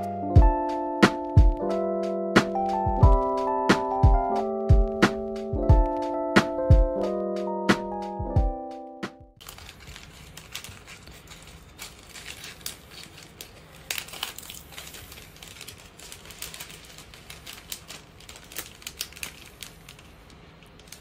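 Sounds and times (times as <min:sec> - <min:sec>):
plastic bag crinkling: 0:09.4 - 0:21.0.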